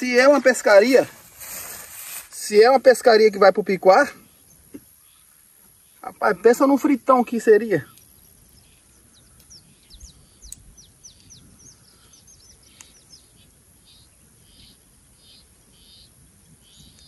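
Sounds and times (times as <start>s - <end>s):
birds chirping faintly: 0.0s - 17.0s
faint clicks: 12.7s - 13.0s.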